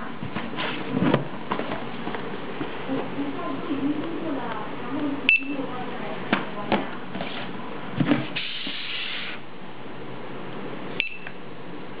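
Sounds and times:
barcode scanner beep: 0:05.3 - 0:05.6, 0:11.0 - 0:11.4.

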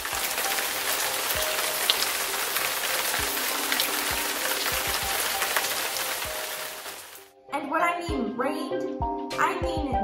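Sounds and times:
steady rain on wet ground: 0:00.0 - 0:07.3.

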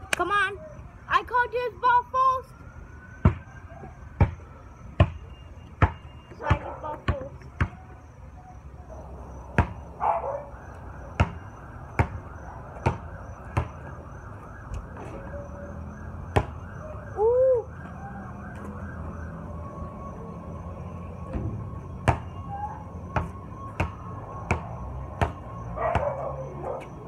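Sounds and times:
basketball bouncing on pavement: 0:03.2 - 0:08.2, 0:09.3 - 0:16.8, 0:21.2 - 0:27.0
wavering wail: 0:16.8 - 0:18.4.

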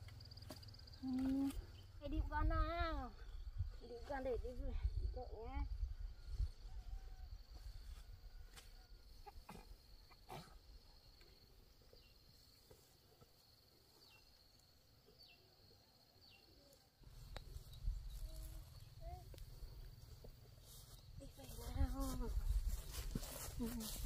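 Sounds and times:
high insect whine: 0:17.0 - 0:21.2.

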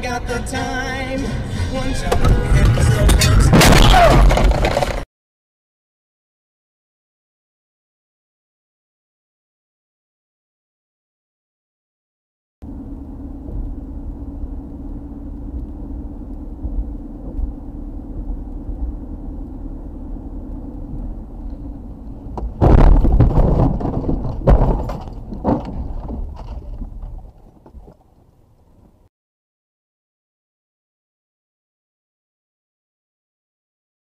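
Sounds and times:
car road and engine drone: 0:00.0 - 0:05.0, 0:12.6 - 0:29.1
car crash scraping and crunching: 0:01.8 - 0:05.1, 0:22.3 - 0:27.6
hard knocks: 0:22.4 - 0:26.2.

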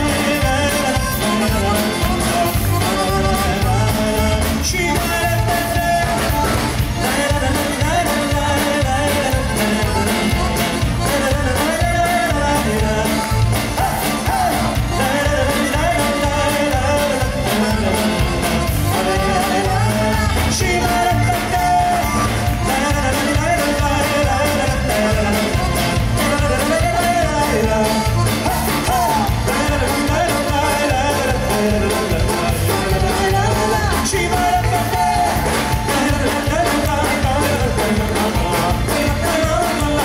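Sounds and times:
drums: 0:00.0 - 0:40.0
electric guitar: 0:00.0 - 0:40.0
keyboard: 0:00.0 - 0:40.0
man singing: 0:00.0 - 0:40.0
woman singing: 0:18.9 - 0:22.2.

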